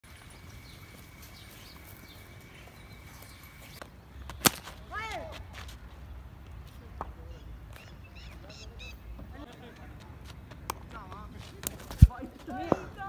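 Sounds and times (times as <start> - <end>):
cricket bat hitting ball: 4.3 - 4.8.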